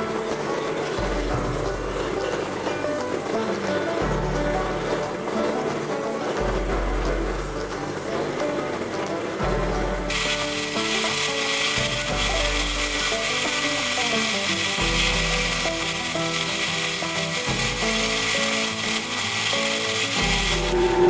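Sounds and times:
background music with bass: 0.0 - 21.0
belt sander sanding wood: 10.0 - 21.0.

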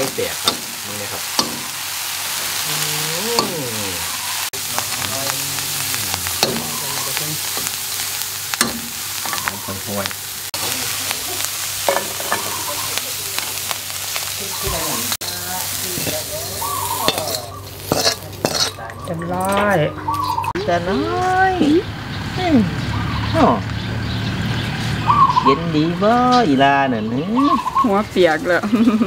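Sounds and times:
insects sizzling in a wok: 0.0 - 18.9, 27.4 - 29.0
metal spatula scraping a pan: 16.9 - 18.9.

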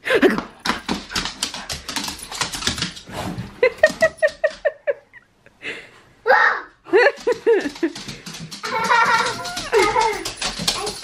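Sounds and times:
dog scrabbling and rustling: 0.7 - 4.6, 7.2 - 11.0.

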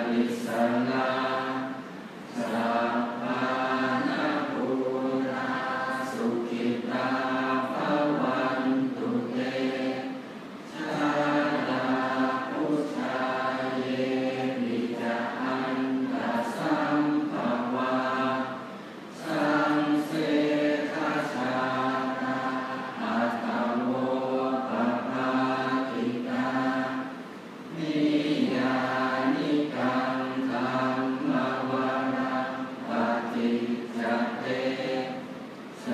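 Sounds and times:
group chanting in unison: 0.0 - 35.9.

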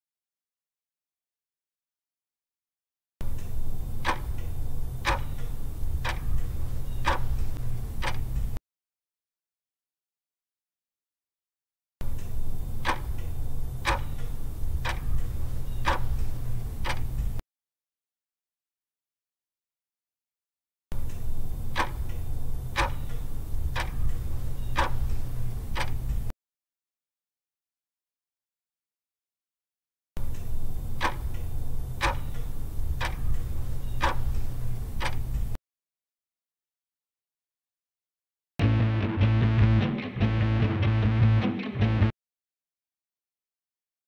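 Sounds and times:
steady low hum: 3.2 - 8.6, 12.0 - 17.4, 21.0 - 26.3, 30.2 - 35.6
clock ticking: 4.0 - 8.3, 12.8 - 16.2, 21.8 - 22.1, 22.8 - 23.2, 23.8 - 25.1, 31.0 - 31.4, 32.0 - 34.3
steady low drone: 38.6 - 42.1.

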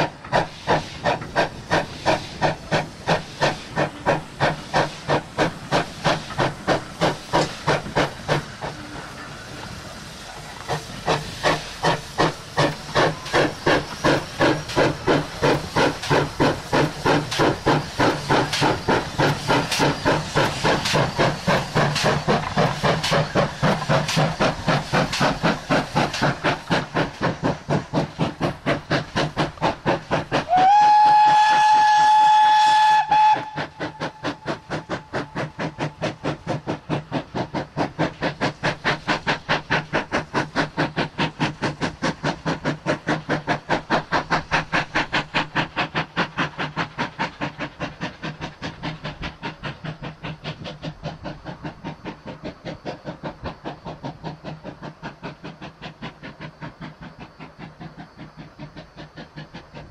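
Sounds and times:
steam locomotive exhaust beats: 0.0 - 59.9
steam locomotive whistle: 30.4 - 34.2.

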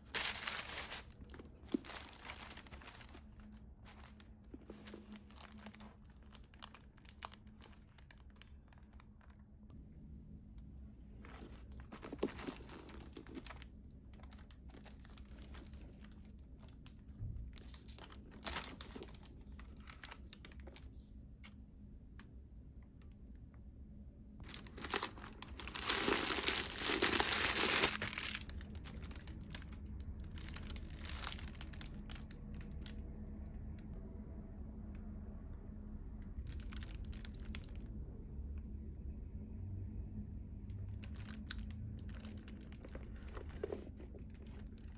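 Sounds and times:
plastic packaging crinkling: 0.0 - 9.6, 11.2 - 21.0, 24.4 - 32.9, 36.4 - 37.8, 40.9 - 44.9.

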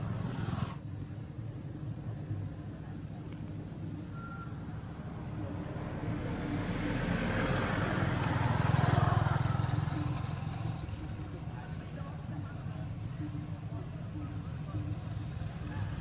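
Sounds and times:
vehicle passing on road: 0.0 - 0.8, 4.6 - 16.0.

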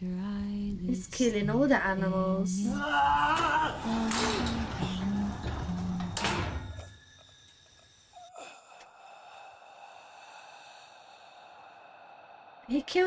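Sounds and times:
faint dark drone: 2.7 - 13.0.

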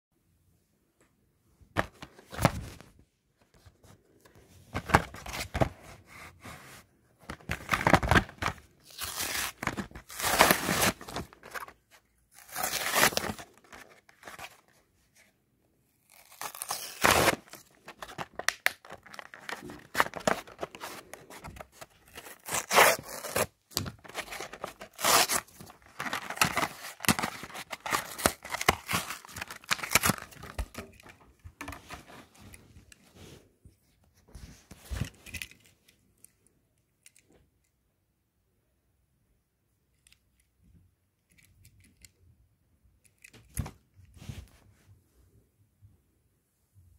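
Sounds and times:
cardboard packaging tearing: 7.6 - 11.7, 12.3 - 14.5, 16.1 - 30.8.

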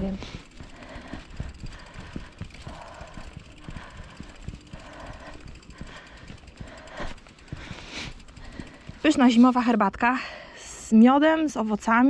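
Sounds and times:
bike knocks and rattles: 0.0 - 9.7
bicycle rolling on pavement: 0.0 - 10.4.

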